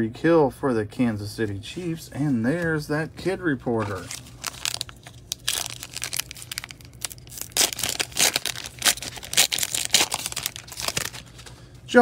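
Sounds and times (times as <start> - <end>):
wrapper tearing and crinkling: 3.8 - 11.6.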